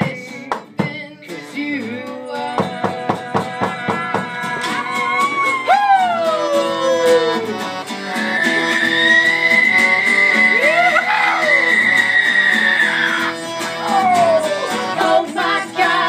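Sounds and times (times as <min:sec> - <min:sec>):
folk song: 0:00.0 - 0:16.0
plucked guitar: 0:00.0 - 0:16.0
high sliding melody: 0:04.6 - 0:16.0.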